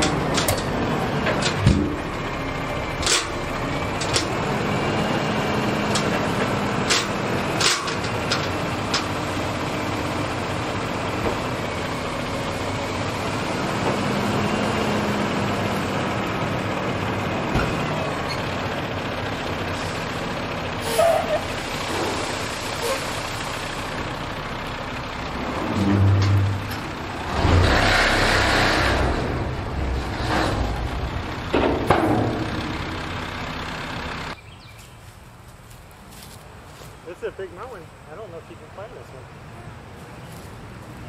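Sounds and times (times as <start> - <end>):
truck body knocks and clanks: 0.0 - 2.3, 17.4 - 18.4, 30.1 - 33.2
diesel engine running: 0.0 - 41.0.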